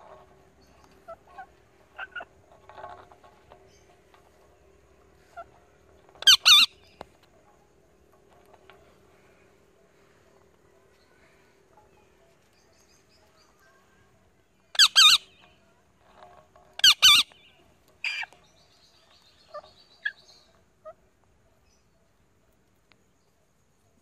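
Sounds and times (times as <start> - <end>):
soft chirps: 0.0 - 23.9
parrots screeching: 6.2 - 6.8, 14.8 - 15.3, 16.8 - 17.4.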